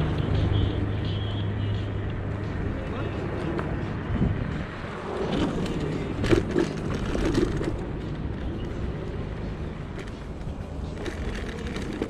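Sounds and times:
wind and road noise rumble: 0:00.0 - 0:12.0.

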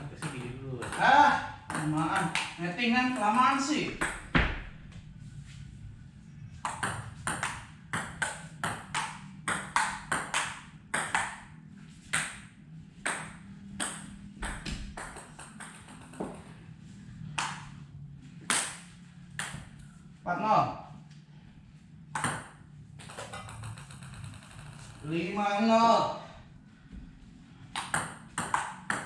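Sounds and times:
table tennis ball clicking: 0:23.0 - 0:24.8.

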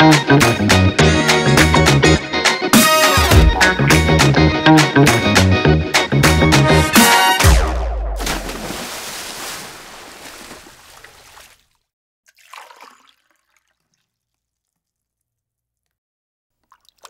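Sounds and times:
music: 0:00.0 - 0:08.0.

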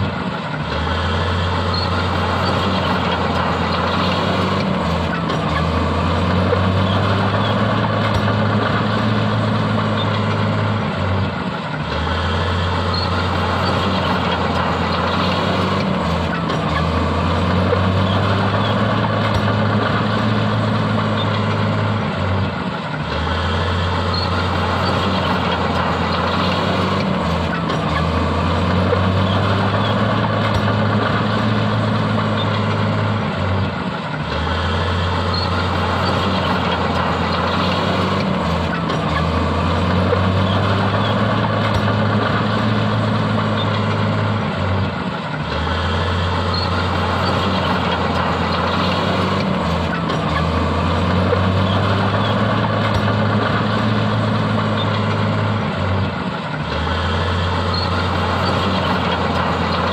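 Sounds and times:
heavy diesel machinery droning: 0:00.0 - 0:59.9.

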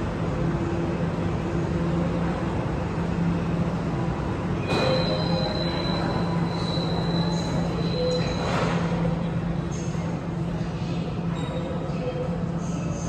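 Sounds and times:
train doors closing: 0:04.2 - 0:09.2
high door-closing warning tone: 0:04.6 - 0:08.8.

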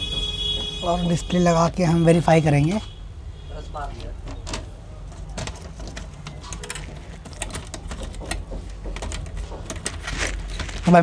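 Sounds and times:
plastic parts clicking and tapping: 0:04.0 - 0:11.0.

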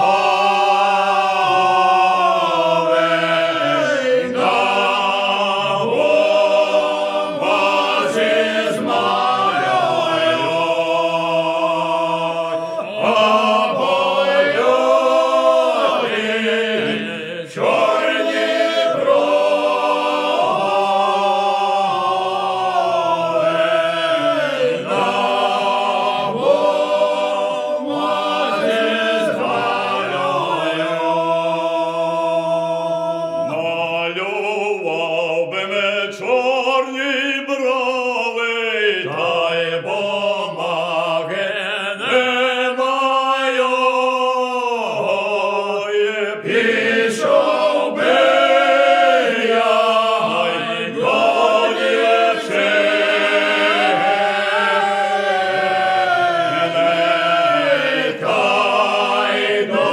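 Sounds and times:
group singing unaccompanied: 0:00.0 - 0:59.9.

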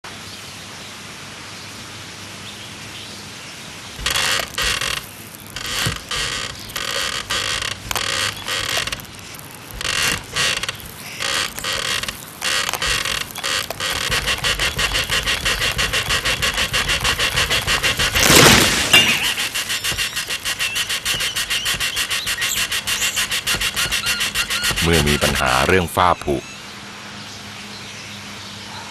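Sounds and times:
wood cracking and falling: 0:04.0 - 0:25.5
saw rasping through wood: 0:04.0 - 0:25.7.

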